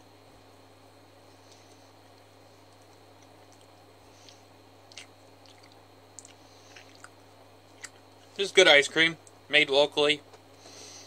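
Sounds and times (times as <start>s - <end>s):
mouth smacks eating ice cream: 3.4s - 8.0s.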